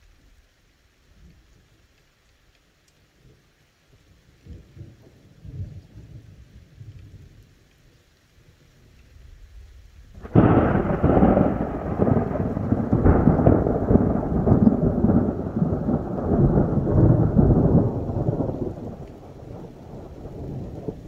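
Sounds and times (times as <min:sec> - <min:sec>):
thunder crack and rumble: 0:10.1 - 0:21.0.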